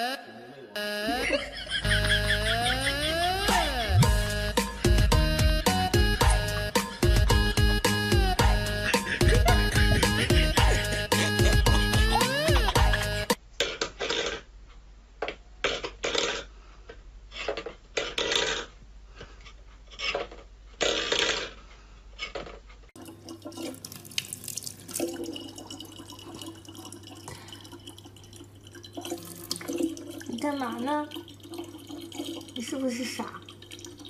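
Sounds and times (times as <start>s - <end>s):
tap water filling plastic bottle: 23.0s - 34.0s.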